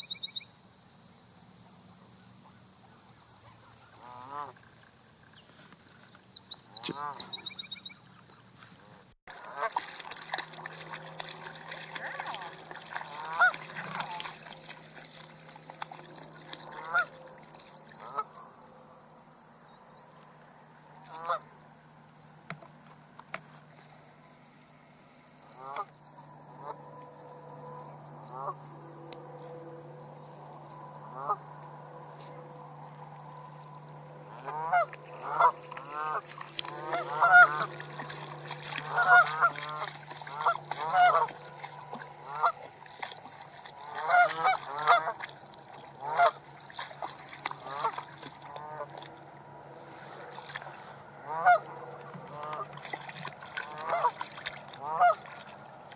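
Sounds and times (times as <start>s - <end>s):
geese honking: 3.8s - 4.6s, 9.4s - 9.9s, 10.5s - 18.4s, 21.0s - 21.5s, 25.5s - 33.2s, 34.0s - 49.0s, 49.7s - 55.5s.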